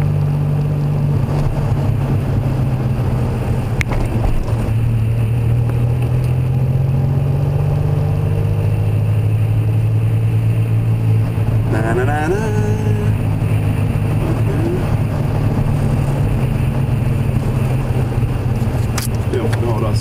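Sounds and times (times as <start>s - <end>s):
car engine and road noise: 0.0s - 20.0s
sharp click: 18.9s - 19.6s.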